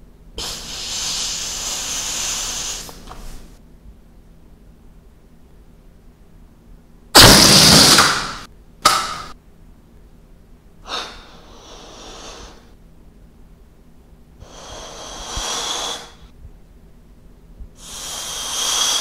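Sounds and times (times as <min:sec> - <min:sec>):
air blown into balloon: 0:00.4 - 0:03.1, 0:14.4 - 0:16.3, 0:17.8 - 0:19.0.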